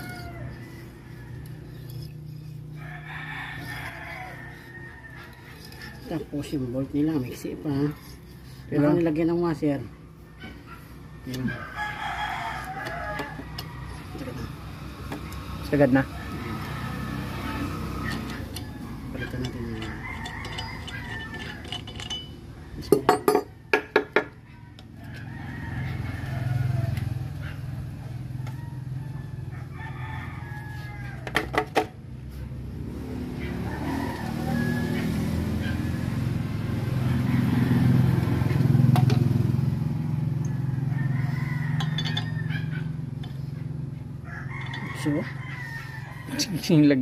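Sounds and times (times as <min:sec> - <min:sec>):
roosters crowing: 0:00.0 - 0:47.0
metallic knocks from hand tools: 0:18.1 - 0:24.4.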